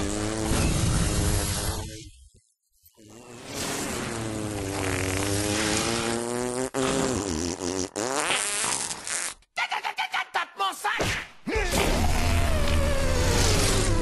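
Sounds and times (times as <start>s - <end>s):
cartoon fart: 0.0s - 2.0s, 2.9s - 9.5s, 11.8s - 14.0s.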